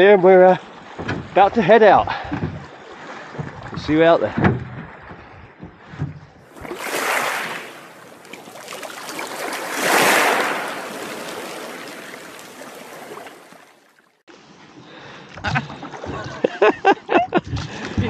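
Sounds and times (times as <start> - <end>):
outdoor ambience on calm water: 0.0 - 18.0
underwater rushing and bubbling: 4.9 - 14.4.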